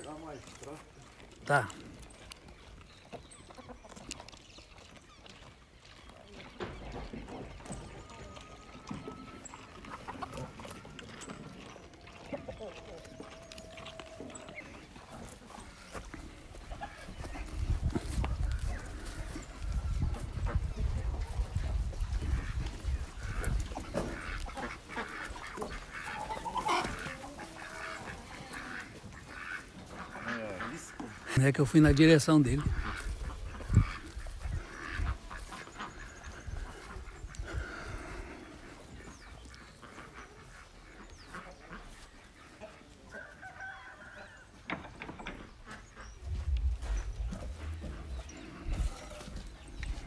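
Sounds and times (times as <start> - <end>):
small birds chirping: 0.0 - 42.8, 45.2 - 50.0
chickens clucking: 0.0 - 50.0
farmyard fowl calling: 0.0 - 50.0
ducks quacking: 8.9 - 13.5, 14.1 - 44.2, 45.3 - 50.0.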